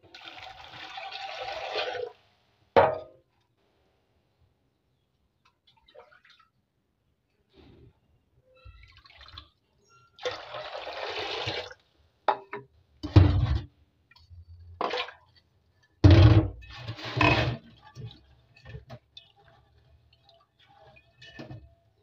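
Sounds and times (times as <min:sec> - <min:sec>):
water gushing into a pot: 0:00.0 - 0:02.2, 0:10.2 - 0:11.8, 0:16.7 - 0:22.0.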